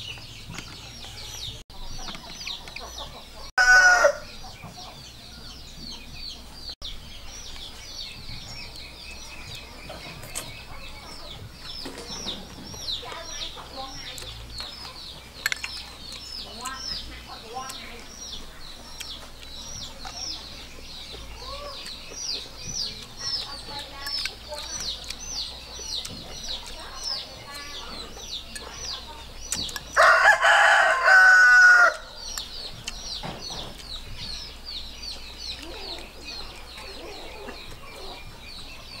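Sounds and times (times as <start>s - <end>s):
bird chirping: 0.0s - 39.0s
rooster crowing: 3.6s - 4.3s, 30.0s - 32.2s.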